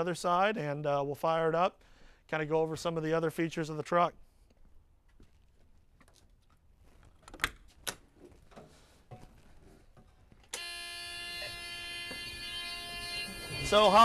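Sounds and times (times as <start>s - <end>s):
truck warning buzzer: 10.5s - 14.0s.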